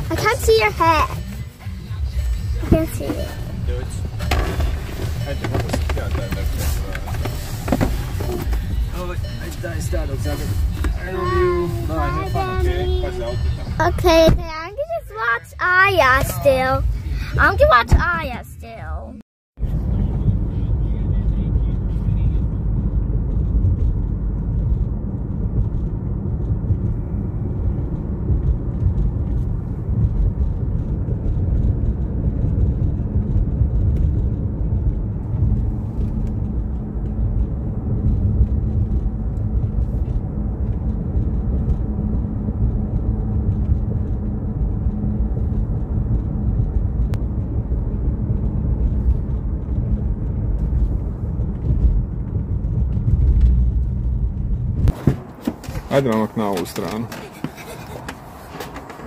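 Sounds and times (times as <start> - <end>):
car engine and road noise: 0.0 - 59.0.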